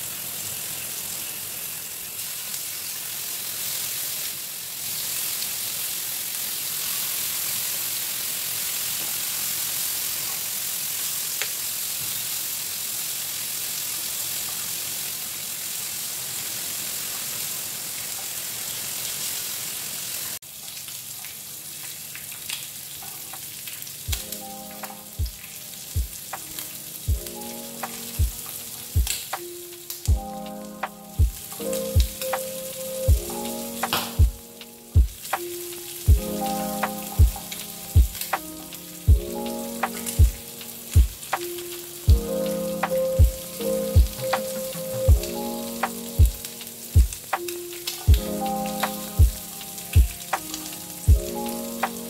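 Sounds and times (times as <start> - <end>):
meat sizzling in a grill pan: 0.0 - 52.0
background music with a beat: 24.1 - 52.0.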